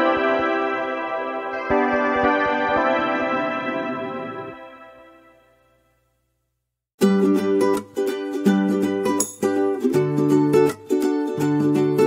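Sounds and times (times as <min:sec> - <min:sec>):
synth chords: 0:00.0 - 0:06.0.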